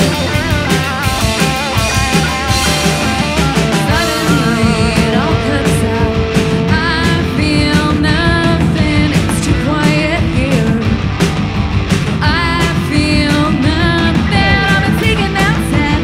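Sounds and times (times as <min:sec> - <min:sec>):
rock band playing: 0:00.0 - 0:16.0
woman singing: 0:03.9 - 0:11.0, 0:12.2 - 0:16.0.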